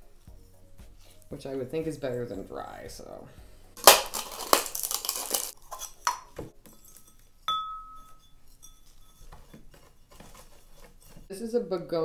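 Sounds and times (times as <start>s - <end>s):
soil and pots rustling: 0.9s - 12.0s
terracotta pots clinking: 3.8s - 11.3s.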